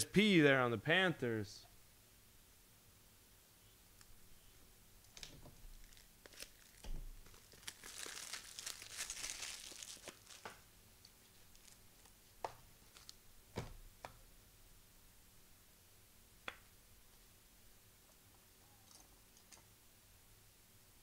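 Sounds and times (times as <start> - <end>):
foil wrapper tearing and crinkling: 5.7 - 10.6.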